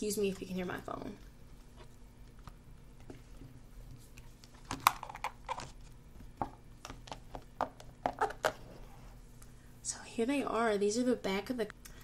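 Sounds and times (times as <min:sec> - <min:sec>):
cards and box tapping and knocking: 0:04.6 - 0:08.6.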